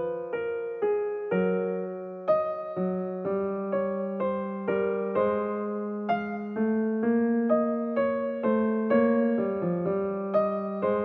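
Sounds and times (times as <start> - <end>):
soft electric piano melody: 0.0 - 11.0.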